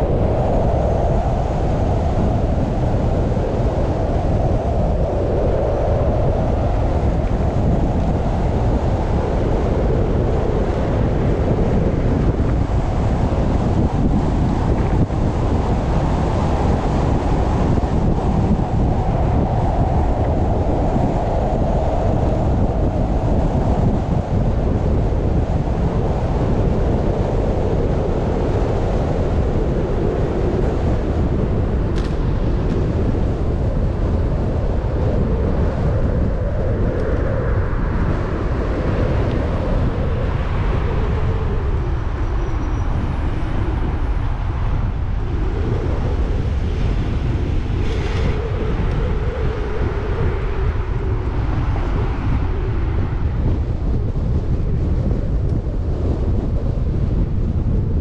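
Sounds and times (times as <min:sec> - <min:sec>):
wind buffeting on microphone: 0:00.0 - 0:58.0.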